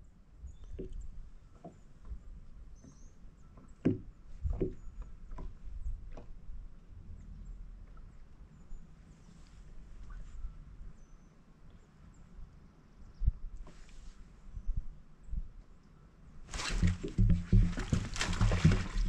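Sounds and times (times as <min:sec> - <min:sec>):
soft knocks and taps: 0:00.7 - 0:03.0, 0:03.6 - 0:06.4, 0:16.7 - 0:19.0.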